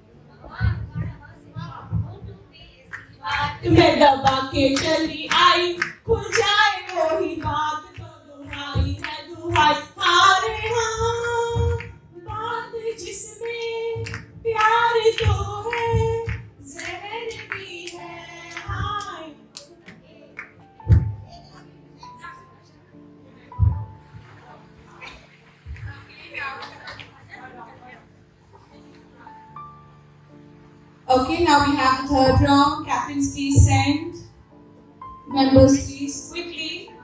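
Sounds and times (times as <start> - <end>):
women clapping along: 2.9 - 21.8, 25.5 - 27.2
woman singing into a microphone: 3.2 - 19.5.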